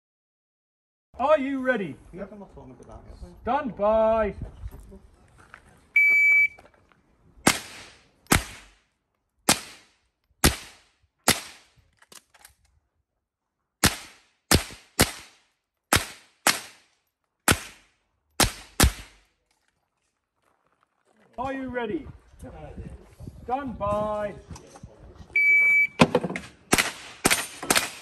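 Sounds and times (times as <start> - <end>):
rifle shots with echo: 7.4 - 8.8, 9.5 - 11.7, 17.5 - 19.2, 26.7 - 28.0.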